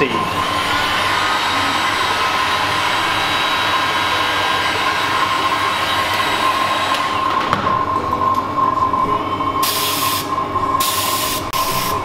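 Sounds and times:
heat gun fan whining: 0.0 - 12.0.

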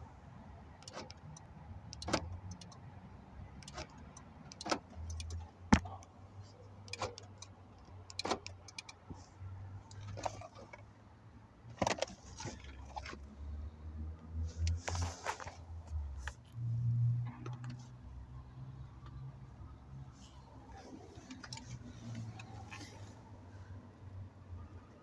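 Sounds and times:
car door locks clunking: 0.8 - 2.8, 3.6 - 6.0, 6.8 - 9.1
key fob handled: 0.8 - 2.8, 3.6 - 5.5, 6.8 - 9.0.

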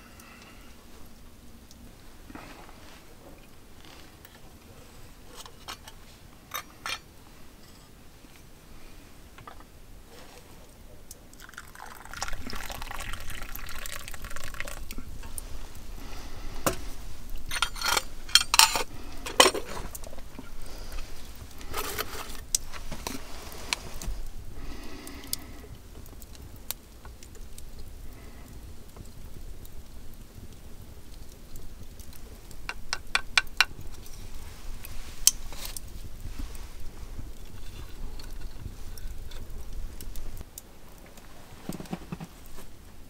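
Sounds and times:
liquid splashing or pouring: 11.4 - 15.8
knocks and clatters of objects: 41.5 - 42.7.

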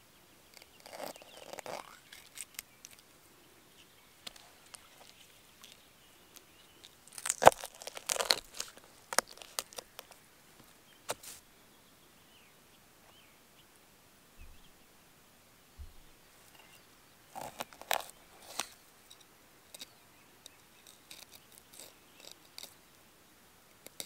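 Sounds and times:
bones crunching and tearing: 0.8 - 3.0, 6.8 - 10.2, 17.4 - 18.7.

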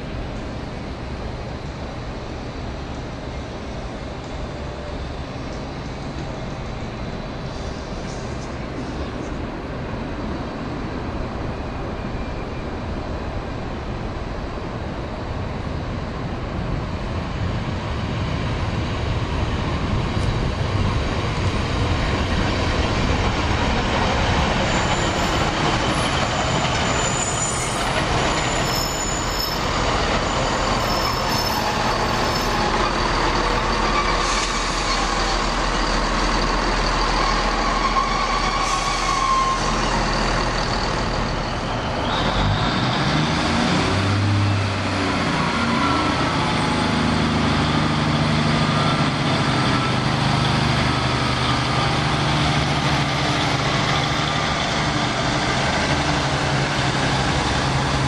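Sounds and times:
diesel train engines: 0.0 - 58.0
train wheels on rails: 0.0 - 58.0
thin brake squeal: 24.7 - 33.0, 36.9 - 40.2.

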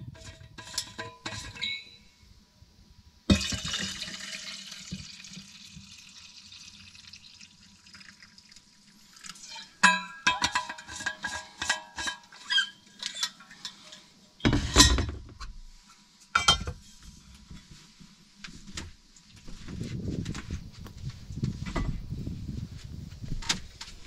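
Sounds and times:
liquid pouring into tumbler: 3.3 - 9.7.

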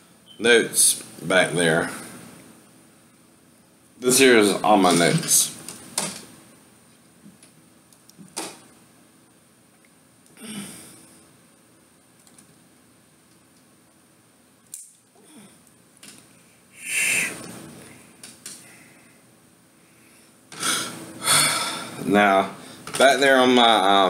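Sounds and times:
man breathing heavily: 16.7 - 22.0.

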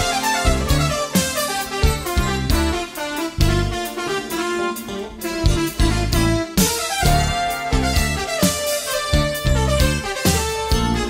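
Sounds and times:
bass notes: 0.0 - 11.0
held lead melody: 0.0 - 11.0
drum beat: 5.2 - 11.0.

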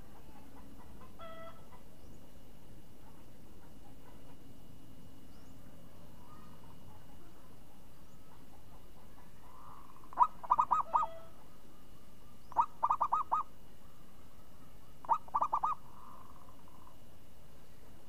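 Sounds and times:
dove cooing: 8.2 - 11.5, 12.5 - 13.5, 15.0 - 17.0.

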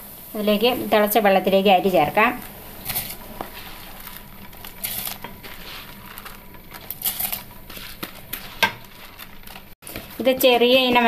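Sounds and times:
boiling water hiss: 0.0 - 8.8
rice grains pattering into water: 2.4 - 10.2.

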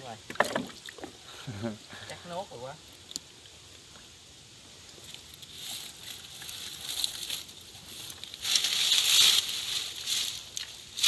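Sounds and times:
leaves rustling and crackling: 2.2 - 11.0.

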